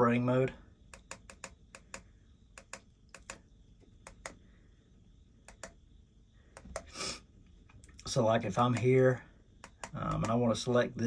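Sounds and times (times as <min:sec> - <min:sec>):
push buttons clicking: 0:00.9 - 0:03.4, 0:05.5 - 0:05.8, 0:09.6 - 0:10.4.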